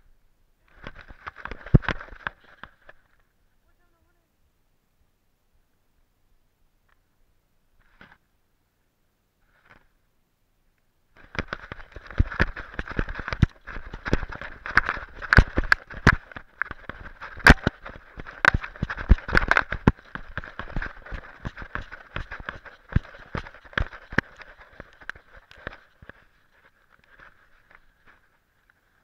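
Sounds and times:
camera knocking and rattling: 0.7 - 3.2, 11.2 - 28.2.

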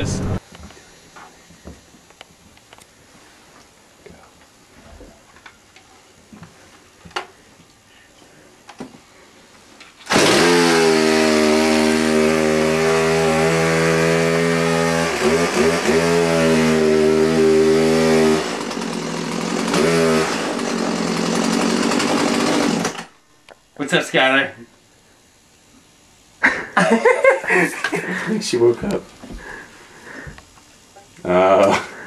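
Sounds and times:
chainsaw running: 10.0 - 23.2, 26.4 - 28.7.

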